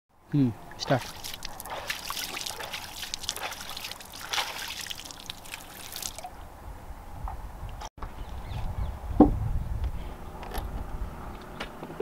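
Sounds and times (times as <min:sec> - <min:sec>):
hand splashing water: 0:00.8 - 0:06.4.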